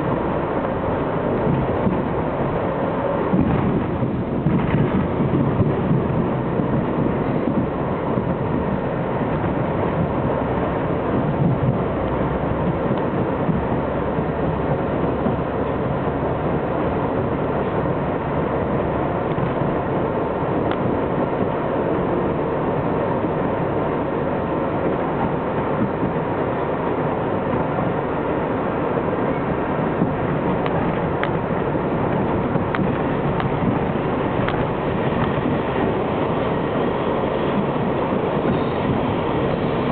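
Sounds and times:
subway train running on rails: 0.0 - 39.9.

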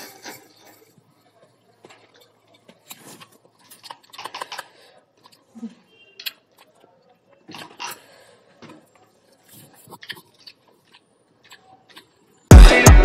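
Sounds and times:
slurping and chewing: 9.4 - 12.2.

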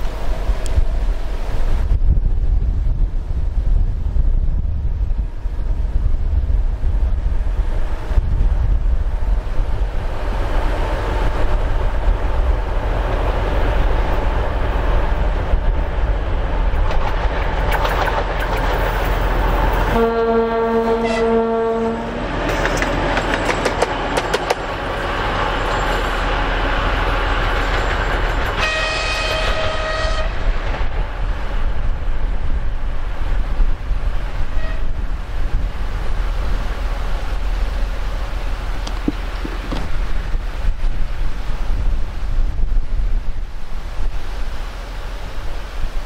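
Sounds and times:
diesel locomotive rumbling: 0.0 - 46.0
wheels clicking over rail joints: 15.5 - 19.9, 22.4 - 26.3, 26.9 - 29.0, 38.6 - 41.0
low locomotive horn: 19.8 - 22.3, 28.5 - 30.6, 34.4 - 35.1
higher-pitched locomotive horn: 19.9 - 22.3, 28.6 - 30.6, 34.5 - 35.0.

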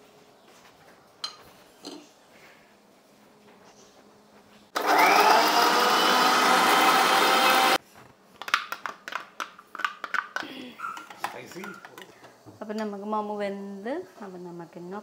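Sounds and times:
mixer grinder motor whining: 4.8 - 7.8.

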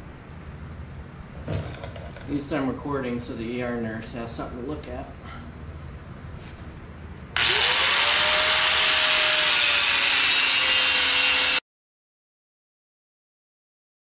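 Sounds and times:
angle grinder grinding steel: 7.4 - 11.6.

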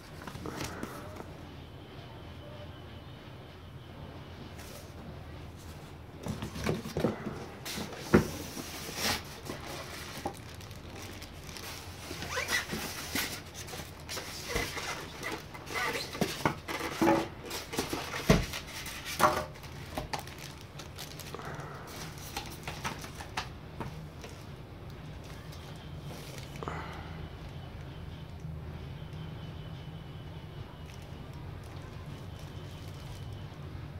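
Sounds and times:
paper and cardboard rustling: 0.0 - 1.3, 4.6 - 24.5
plastic wrap crinkling: 7.6 - 26.7, 30.8 - 33.5.

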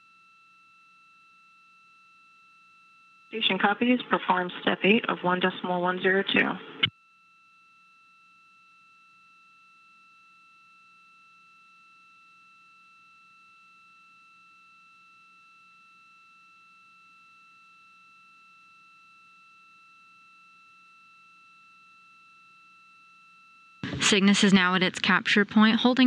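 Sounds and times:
faint low hum: 3.4 - 6.9.

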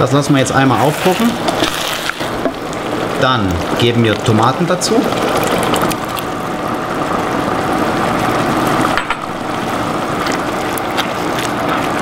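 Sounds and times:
sauce sizzling and bubbling in pot: 0.0 - 12.0
wooden spoon stirring: 0.4 - 6.3.

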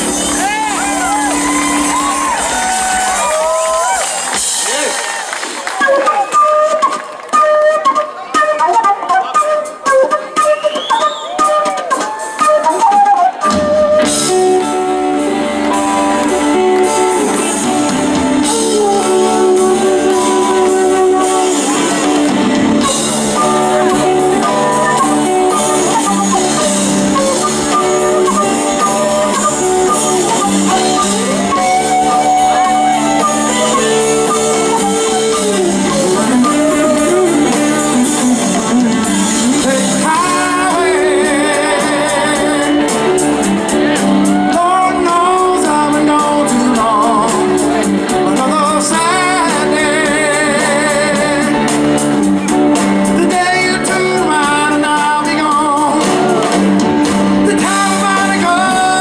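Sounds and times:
bass guitar: 0.0 - 7.7, 8.8 - 59.0
drums: 0.0 - 59.0
electric guitars: 0.0 - 59.0
man singing: 16.2 - 52.2, 53.0 - 59.0.

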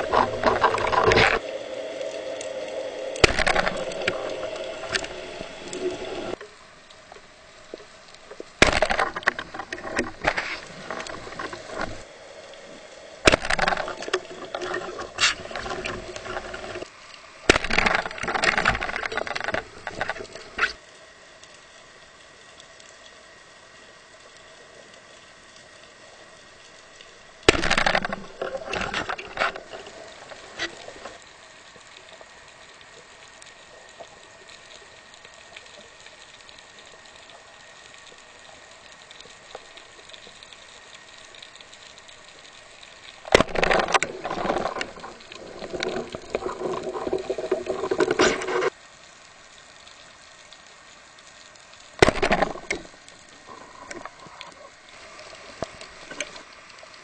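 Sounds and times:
rushing bubbling water: 0.0 - 20.8, 26.8 - 31.2, 39.3 - 48.8, 51.9 - 57.0
underwater hiss: 1.0 - 6.4.

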